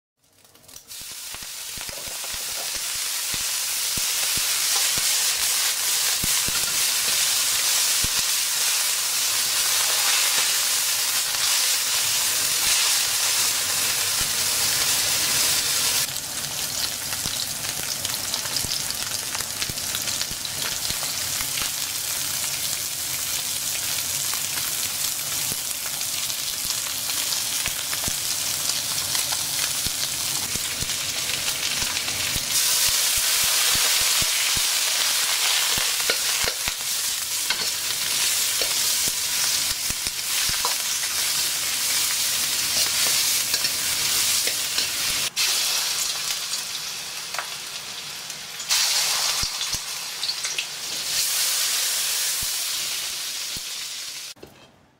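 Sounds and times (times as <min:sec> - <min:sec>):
food sizzling in hot oil: 0:00.2 - 0:54.4
spatula scraping wok: 0:40.3 - 0:45.4.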